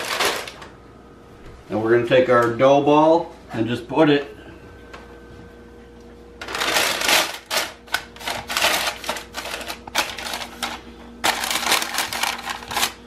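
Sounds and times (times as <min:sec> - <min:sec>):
parchment paper crinkling: 0:06.4 - 0:13.0.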